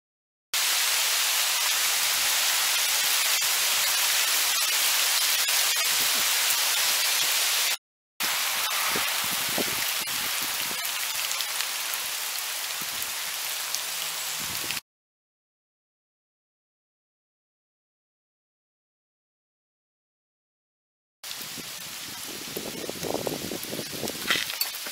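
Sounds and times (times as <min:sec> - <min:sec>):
hailstones falling on pavement: 0:23.0 - 0:24.9.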